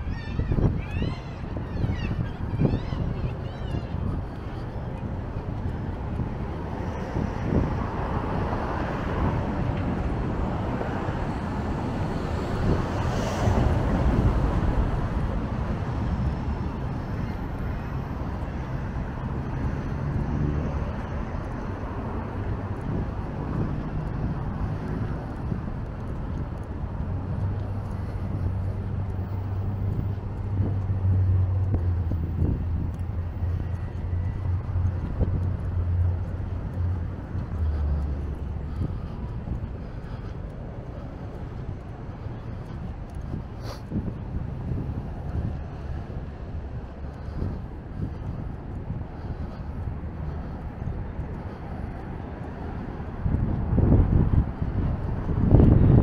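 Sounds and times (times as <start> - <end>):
street traffic: 0.0 - 56.0
vehicle passing: 0.0 - 56.0
low engine hum: 2.6 - 56.0.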